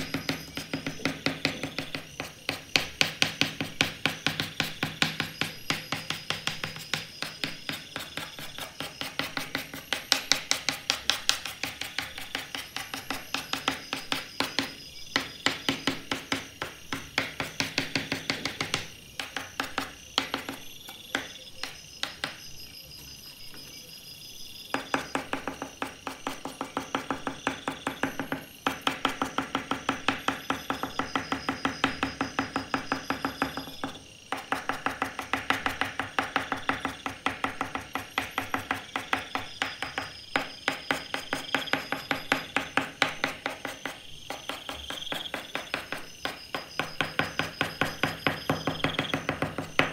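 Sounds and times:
pastel stick scratching on paper: 0.0 - 14.7, 39.8 - 49.9.

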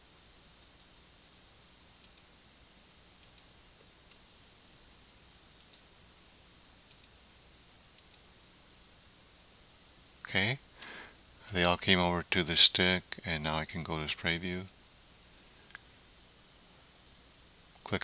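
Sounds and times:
faint low hum: 0.0 - 18.0
computer mouse clicking: 0.6 - 0.9, 2.0 - 2.3, 3.2 - 3.5, 5.6 - 5.8, 6.9 - 7.2, 8.0 - 8.3.

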